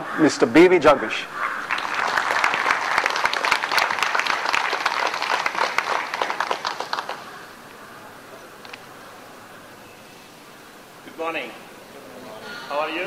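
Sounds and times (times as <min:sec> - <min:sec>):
audience applauding: 0:01.4 - 0:08.8.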